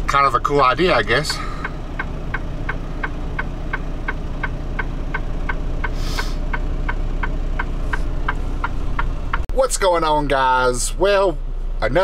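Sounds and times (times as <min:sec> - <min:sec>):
truck engine idling: 0:00.0 - 0:12.0
light ticking: 0:01.2 - 0:09.5
short hiss: 0:05.9 - 0:06.4.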